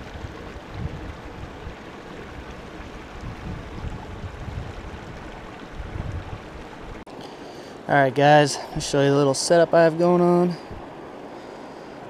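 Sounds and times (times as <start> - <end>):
wind on microphone: 0.0 - 7.0, 10.6 - 10.9
river water rushing over boulders: 0.0 - 12.0.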